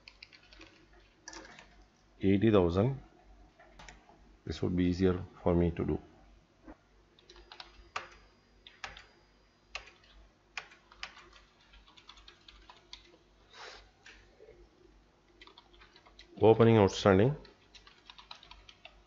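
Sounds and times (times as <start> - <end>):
faint keyboard typing: 0.0 - 2.1, 3.5 - 4.2, 7.2 - 13.2, 15.2 - 16.6, 17.2 - 19.0.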